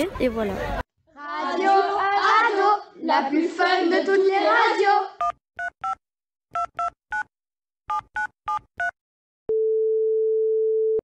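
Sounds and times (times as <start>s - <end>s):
keypad dialing beeps: 5.2s - 6.0s, 6.6s - 7.3s
telephone line tone: 9.5s - 11.0s.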